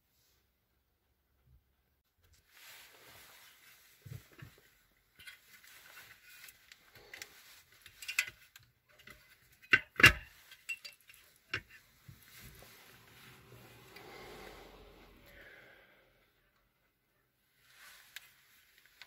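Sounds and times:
rustling: 0:02.2 - 0:09.6, 0:10.2 - 0:15.8, 0:17.5 - 0:19.0.

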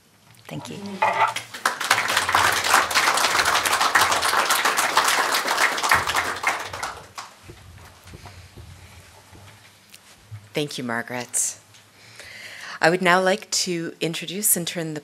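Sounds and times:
audience applauding: 0:01.4 - 0:08.2.

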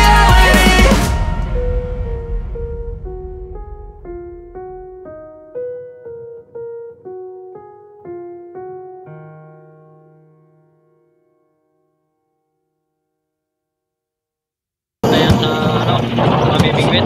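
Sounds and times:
piano melody: 0:00.0 - 0:12.6.

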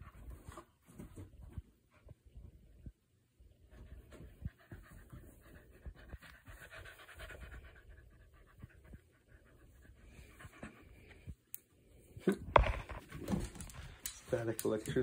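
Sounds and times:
dog panting: 0:03.8 - 0:11.4.

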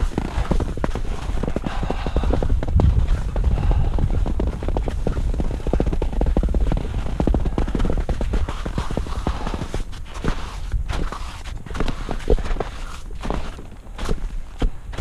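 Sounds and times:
skis scraping over snow: 0:00.0 - 0:15.0
wind buffeting microphone: 0:00.0 - 0:15.0.

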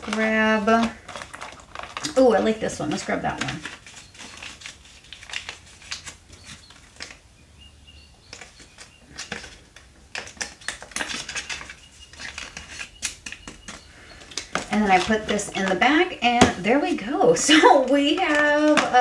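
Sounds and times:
paper money rustling: 0:00.0 - 0:07.2, 0:08.3 - 0:16.1.

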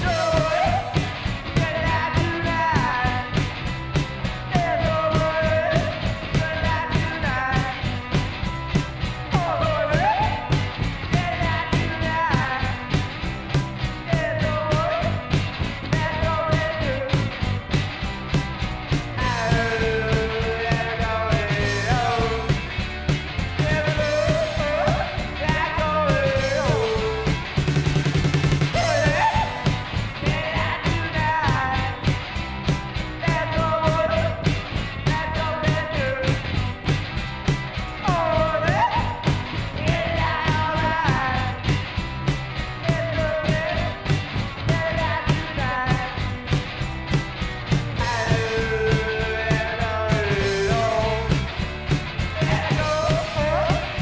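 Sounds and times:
man singing: 0:00.0 - 0:03.5, 0:04.4 - 0:08.0, 0:09.3 - 0:13.0, 0:14.0 - 0:17.4, 0:19.1 - 0:22.8, 0:23.6 - 0:27.5, 0:28.7 - 0:32.2, 0:33.0 - 0:36.6, 0:38.0 - 0:41.8, 0:42.7 - 0:46.3, 0:47.9 - 0:51.6, 0:52.3 - 0:54.0
distorted electric guitar: 0:00.0 - 0:54.0
drum kit with cymbals: 0:00.0 - 0:54.0
electric bass: 0:00.0 - 0:54.0.

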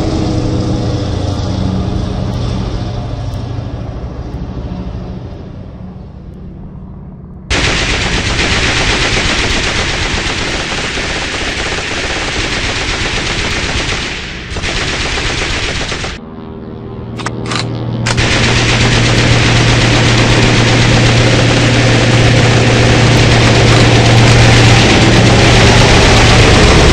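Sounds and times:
steady engine drone: 0:00.0 - 0:26.9
machine-gun fire: 0:07.5 - 0:16.2, 0:17.2 - 0:26.9.

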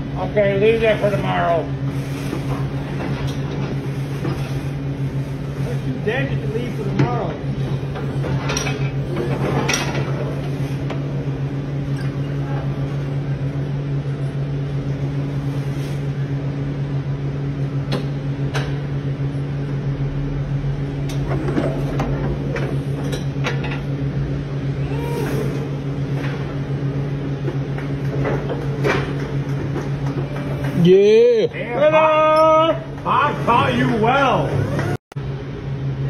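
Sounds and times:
hydraulic pump motor humming: 0:31.8 - 0:35.0.

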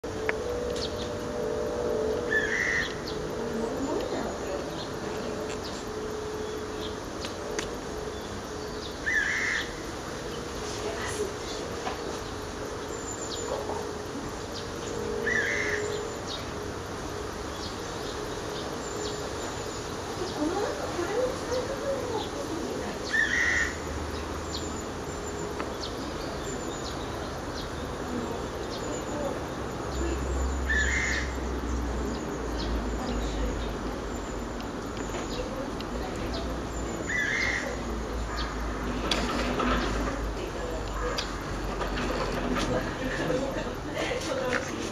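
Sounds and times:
faint steady hum: 0:00.0 - 0:44.9
small birds chirping: 0:00.1 - 0:44.9
partridge calling in distance: 0:00.4 - 0:04.4, 0:09.0 - 0:09.8, 0:15.1 - 0:16.1, 0:21.2 - 0:24.0, 0:30.6 - 0:31.5, 0:37.0 - 0:38.8.

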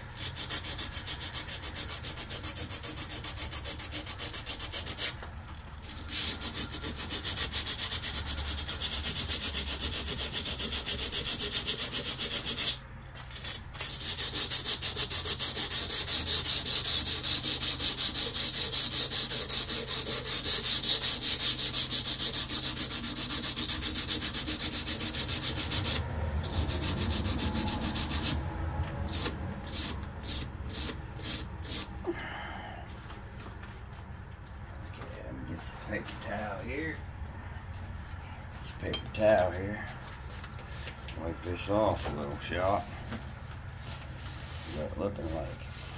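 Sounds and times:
sandpaper rubbing steel blade: 0:00.0 - 0:05.2, 0:05.8 - 0:28.4, 0:29.0 - 0:31.9.

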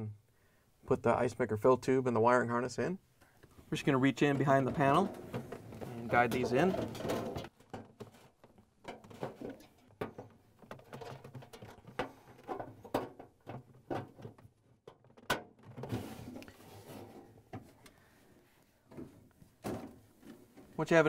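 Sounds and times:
rubbing and scraping: 0:03.8 - 0:14.4, 0:15.7 - 0:17.7.

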